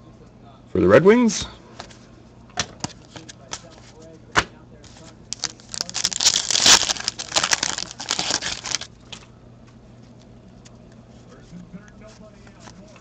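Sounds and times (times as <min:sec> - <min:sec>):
wrapper crinkling: 0:05.3 - 0:08.9.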